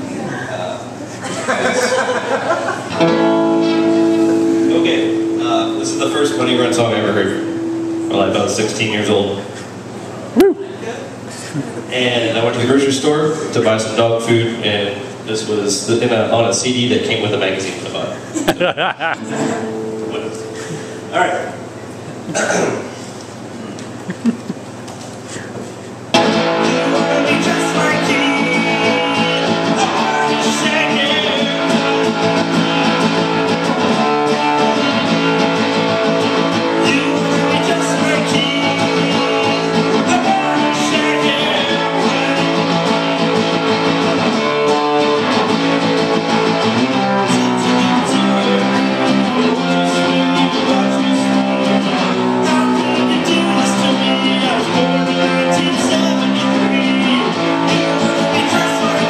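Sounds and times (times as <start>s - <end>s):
acoustic guitar strumming chords: 2.8s - 9.9s, 18.7s - 23.2s, 26.1s - 59.0s.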